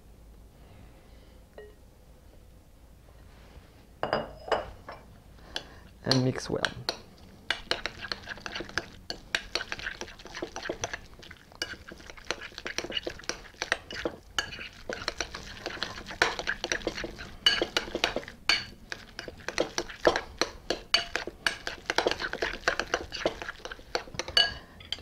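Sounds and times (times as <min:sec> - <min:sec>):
metal spoon clinking in glass bowl: 0:17.4 - 0:19.3, 0:20.7 - 0:22.2, 0:24.2 - 0:25.0.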